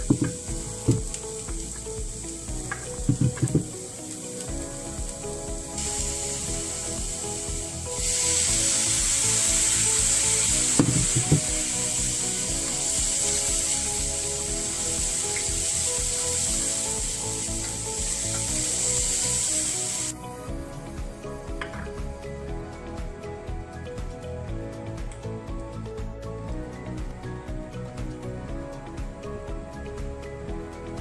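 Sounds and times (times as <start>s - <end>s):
food sizzling in frying pan: 0.0s - 20.4s.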